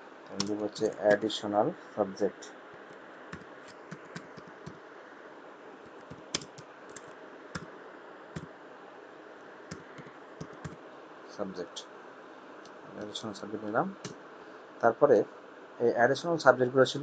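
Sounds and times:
faint steady hiss: 0.0 - 17.0
computer keyboard typing: 0.3 - 1.1, 3.3 - 4.8, 5.9 - 7.7, 9.7 - 10.8.

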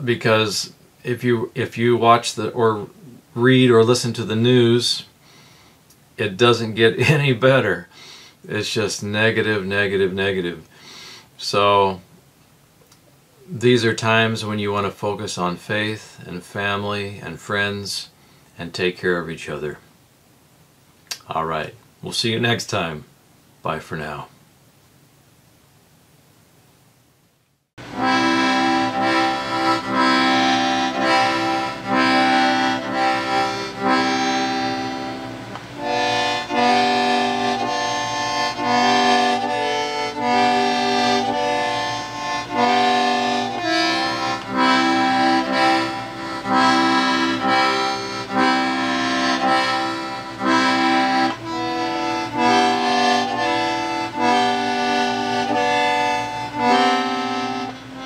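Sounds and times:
accordion playing a tune: 27.8 - 58.0.

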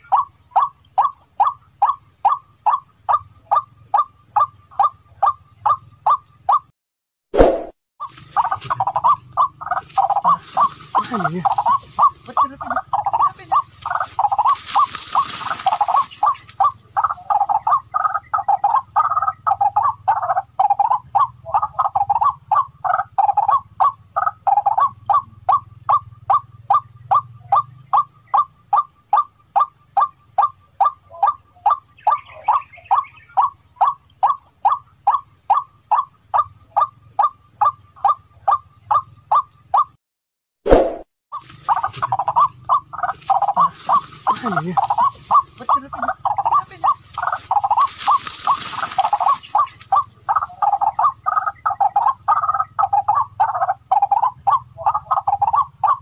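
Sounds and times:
waterhen calling: 0.0 - 6.7, 7.4 - 39.9, 40.7 - 56.0
broad rushing noise: 7.4 - 7.7, 40.7 - 41.0.

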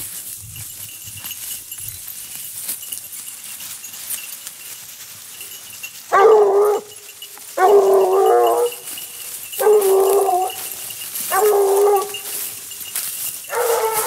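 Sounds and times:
dry leaves rustling: 0.0 - 14.0
hounds baying: 5.4 - 14.0.

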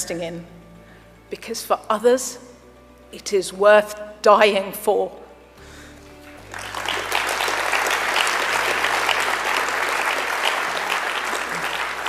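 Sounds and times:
audience applauding: 6.2 - 12.0.

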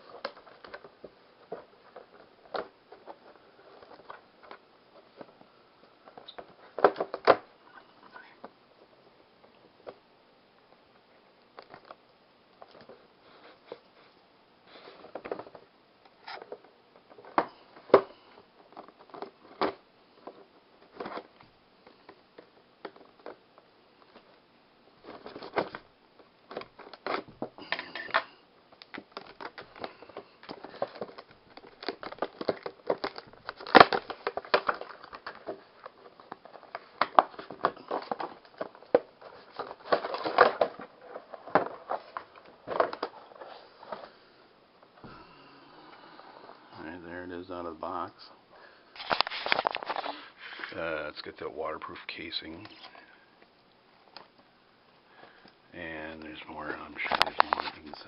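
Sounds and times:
plastic packaging crinkling: 26.5 - 44.1, 49.0 - 50.8, 56.3 - 58.0.

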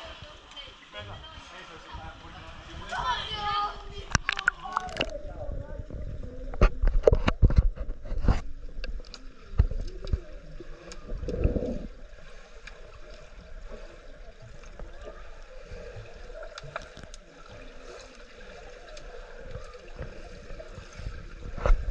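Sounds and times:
low water rush: 0.0 - 21.9
muffled underwater noise: 0.0 - 21.9
small underwater clicks and knocks: 3.9 - 5.2, 5.9 - 21.9.

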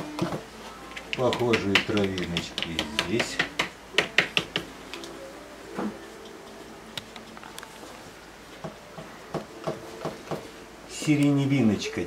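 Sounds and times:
paintbrush tapping on canvas: 1.1 - 4.7.

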